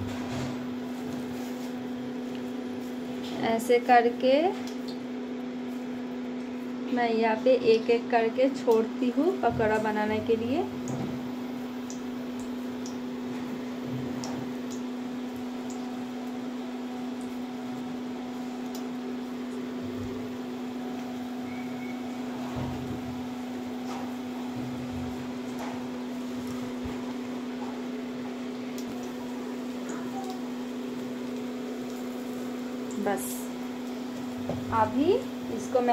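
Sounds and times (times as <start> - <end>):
induction cooktop humming: 0.0 - 35.9
oil sizzling: 7.9 - 35.9.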